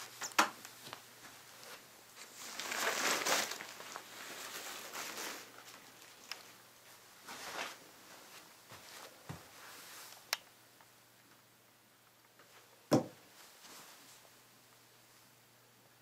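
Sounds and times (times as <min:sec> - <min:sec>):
faint rustling: 0:00.7 - 0:10.3.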